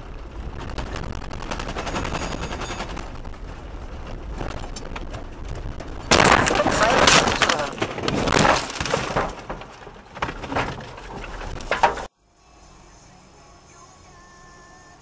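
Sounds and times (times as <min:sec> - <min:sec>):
glass breaking: 0:01.5 - 0:03.3, 0:05.9 - 0:12.1
branches crunching and cracking: 0:02.8 - 0:12.0.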